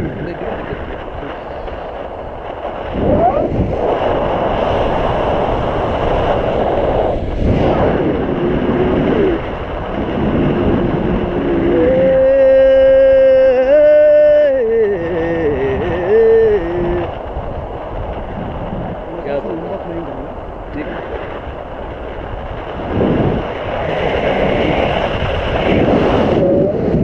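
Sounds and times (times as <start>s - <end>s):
wind rushing over microphone: 0.0s - 27.0s
man singing long notes: 11.2s - 17.2s.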